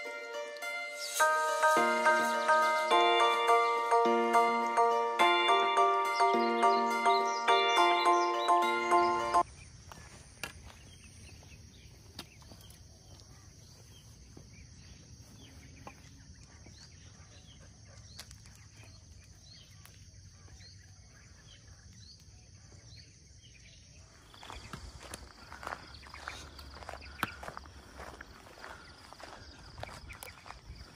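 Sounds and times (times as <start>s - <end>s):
high-pitched insect drone: 0.0s - 9.4s.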